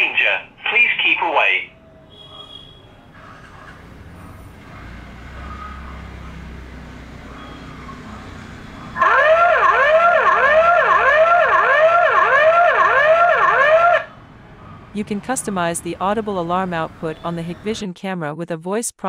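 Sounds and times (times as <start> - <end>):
whooping electronic siren: 7.3 - 14.2.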